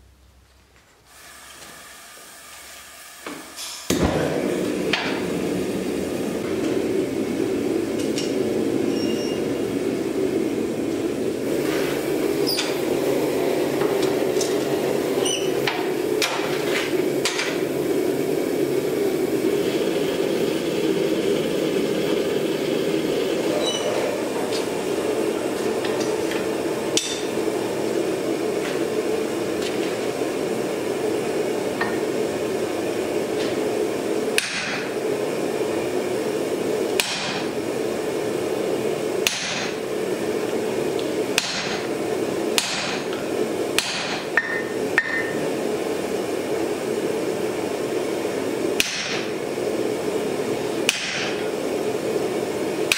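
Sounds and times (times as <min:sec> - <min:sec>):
gas forge roaring: 0:00.0 - 0:52.9
hammer striking tool on anvil: 0:27.0 - 0:27.3, 0:34.4 - 0:34.8, 0:37.0 - 0:37.4, 0:39.2 - 0:39.7, 0:41.4 - 0:41.8, 0:42.6 - 0:43.0, 0:43.8 - 0:45.4, 0:48.8 - 0:49.3, 0:50.9 - 0:51.4.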